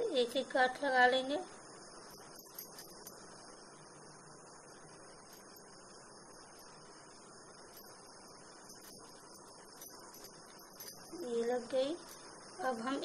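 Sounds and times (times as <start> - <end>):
faint high-pitched hiss: 0.0 - 13.0.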